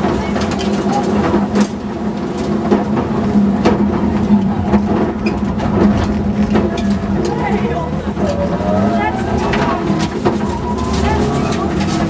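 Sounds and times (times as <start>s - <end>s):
car engine at speed: 3.4s - 12.0s.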